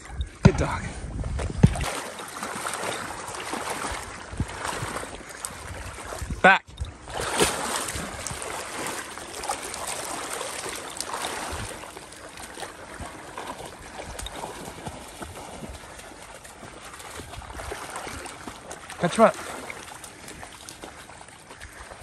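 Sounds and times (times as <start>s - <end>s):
dog splashing through water: 1.6s - 6.4s, 7.0s - 22.0s.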